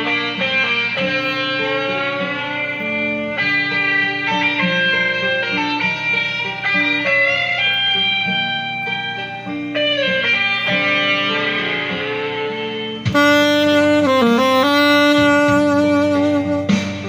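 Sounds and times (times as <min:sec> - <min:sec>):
guitar sustained notes: 0:00.0 - 0:17.0
saxophone slow melody: 0:00.0 - 0:17.0.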